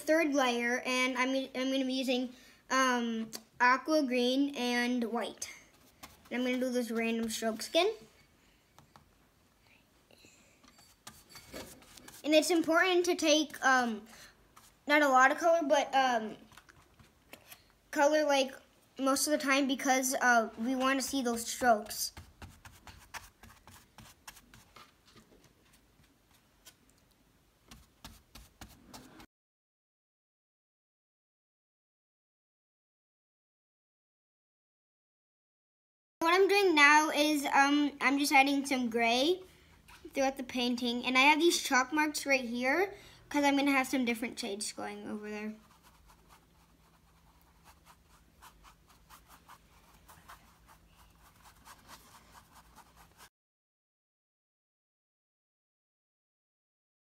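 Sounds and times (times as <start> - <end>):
paintbrush tapping and scratching: 10.7 - 13.0, 20.8 - 29.3, 45.5 - 53.3.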